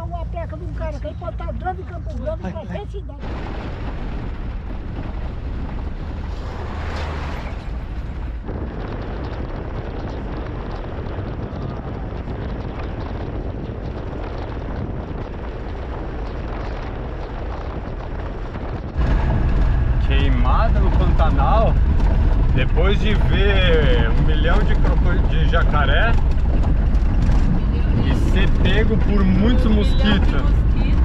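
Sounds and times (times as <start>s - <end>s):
wind rumble on microphone: 0.0s - 31.0s.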